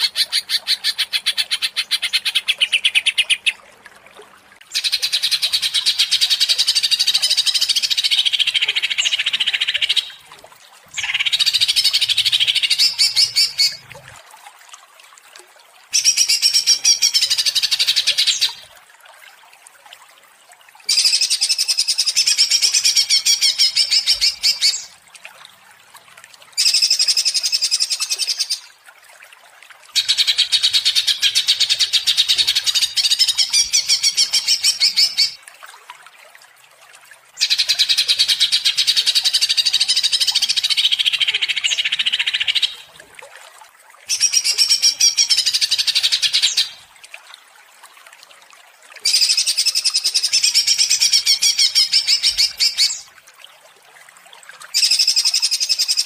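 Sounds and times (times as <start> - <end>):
bird chattering warble: 11.0 - 13.8.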